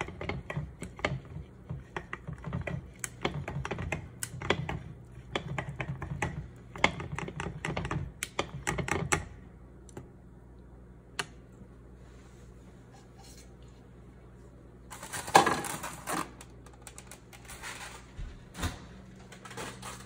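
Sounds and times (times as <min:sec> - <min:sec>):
chopsticks whisking in glass bowl: 0:00.0 - 0:07.8.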